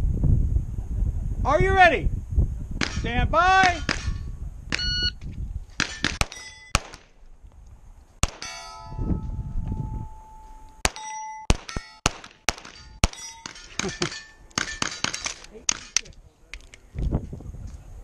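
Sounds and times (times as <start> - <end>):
pistol shots: 2.8 - 4.9, 5.8 - 7.2, 8.2 - 8.8, 10.8 - 16.0
steel plates clanging: 5.8 - 6.8, 8.4 - 9.4, 10.0 - 16.0.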